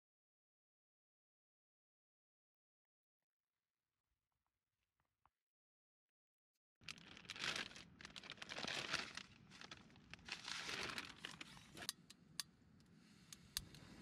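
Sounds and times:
plastic bag crinkling: 6.8s - 11.9s.

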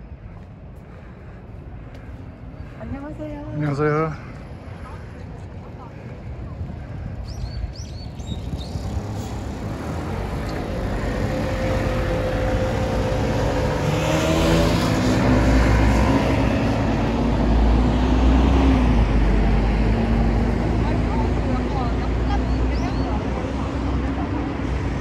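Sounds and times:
vehicle engine passing close: 8.4s - 25.0s.

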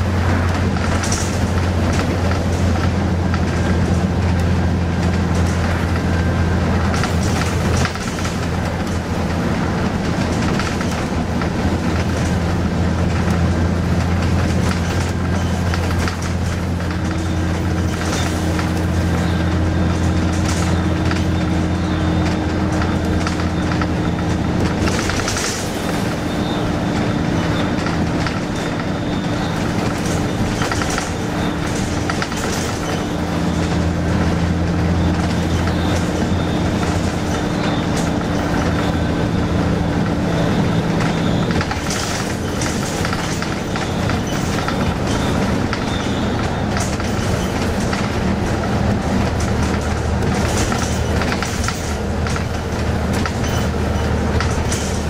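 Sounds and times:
bus engine humming: 0.0s - 55.0s
high engine whine: 0.0s - 55.0s
rattles and clicks from fittings: 41.5s - 55.0s.

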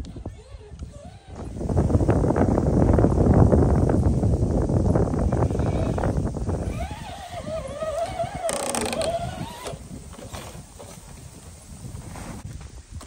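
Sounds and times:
electric motor whining: 5.1s - 9.8s
faint ticks and scrapes: 6.7s - 12.7s.

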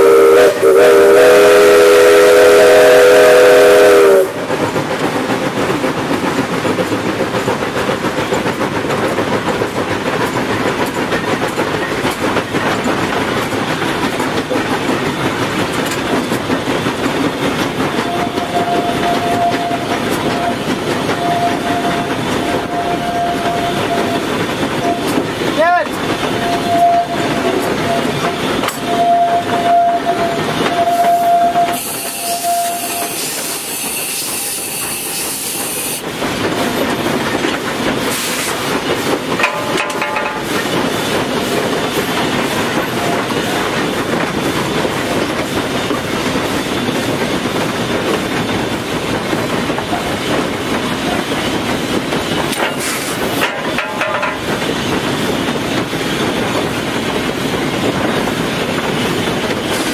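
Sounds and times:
steam whistle: 0.0s - 4.4s, 18.0s - 24.2s, 24.8s - 25.2s, 26.4s - 36.0s
loud steam hiss: 0.0s - 59.9s
train clattering: 0.0s - 59.9s.

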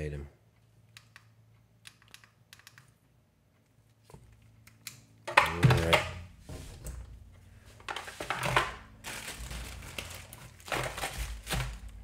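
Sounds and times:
plastic and cardboard crinkling: 7.7s - 12.0s.

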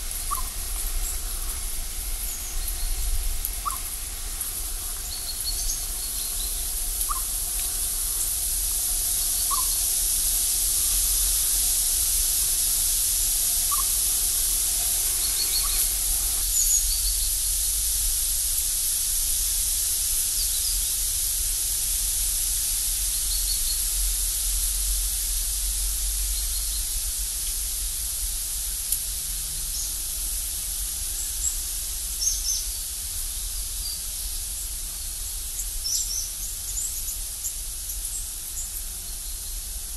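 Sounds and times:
steady outdoor hiss: 0.0s - 39.9s
chipmunk chirping: 0.2s - 1.6s, 3.6s - 16.4s.

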